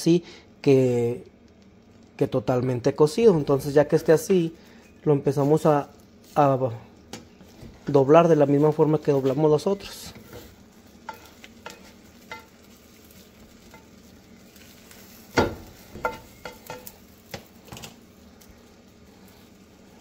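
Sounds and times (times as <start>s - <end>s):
faint sizzle: 0.0s - 20.0s
spatula tapping frying pan: 10.3s - 14.1s, 14.9s - 17.9s.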